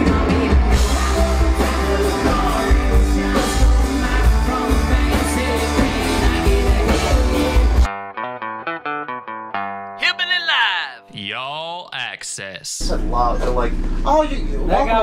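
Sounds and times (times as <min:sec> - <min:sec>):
person singing: 0:10.0 - 0:12.8.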